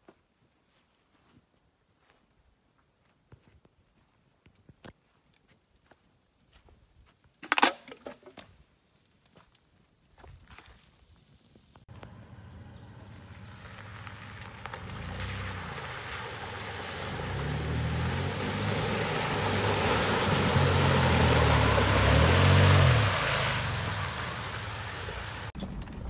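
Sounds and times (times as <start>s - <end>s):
engine revving: 11.9s - 25.6s
water splashing and sloshing: 13.5s - 26.0s.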